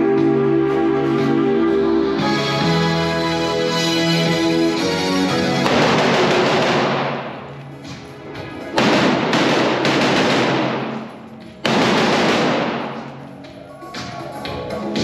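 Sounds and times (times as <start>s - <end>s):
rock music: 1.2s - 9.9s, 12.4s - 15.0s
rifle shots echoing indoors: 5.5s - 7.6s, 8.7s - 13.3s.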